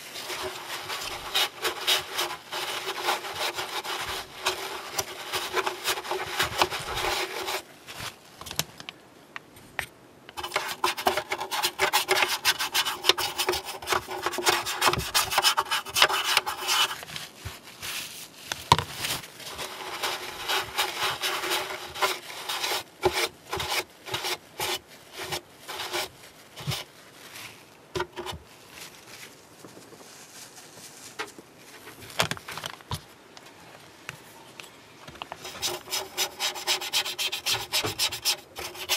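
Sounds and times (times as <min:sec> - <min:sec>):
tissue rubbing on plastic: 0:00.0 - 0:08.2, 0:10.4 - 0:32.0
scrapes and rustles: 0:00.0 - 0:08.8, 0:10.4 - 0:34.4, 0:35.1 - 0:38.9.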